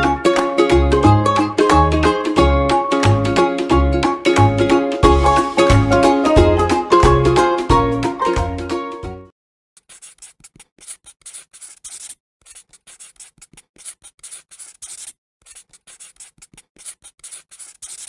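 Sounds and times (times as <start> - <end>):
background music: 0.0 - 9.3
pen scratching on paper: 9.8 - 18.0.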